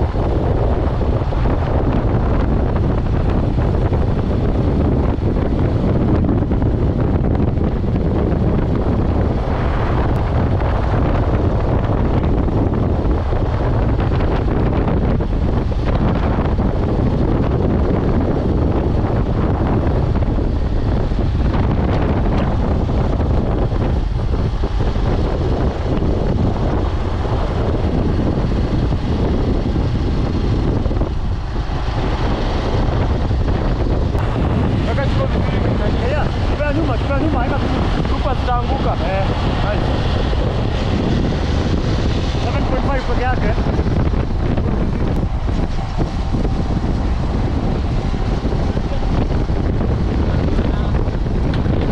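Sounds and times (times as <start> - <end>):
wind rushing over microphone: 0.0 - 51.9.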